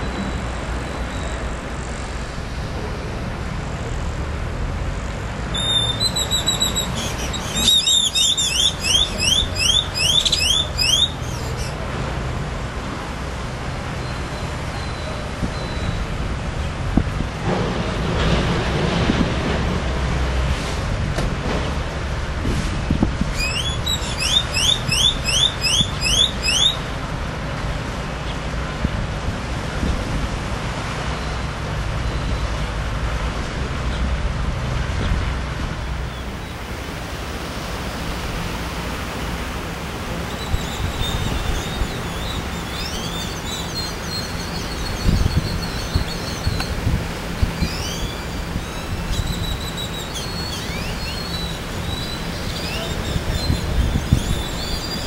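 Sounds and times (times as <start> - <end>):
wind rumble on microphone: 8.8 - 55.0.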